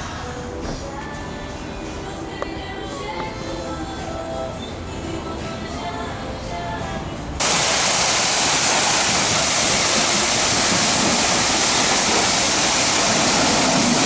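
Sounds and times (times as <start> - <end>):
pressure washer spraying water: 7.4 - 14.0.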